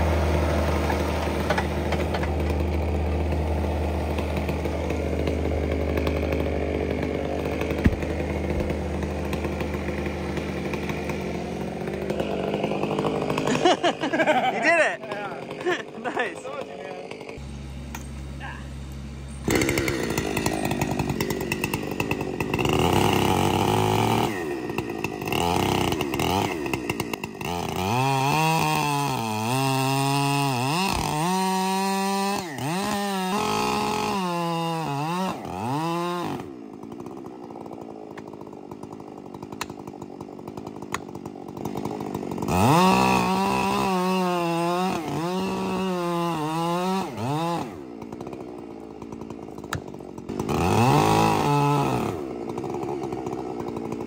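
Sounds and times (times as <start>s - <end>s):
chainsaw cutting and revving: 0.0s - 54.0s.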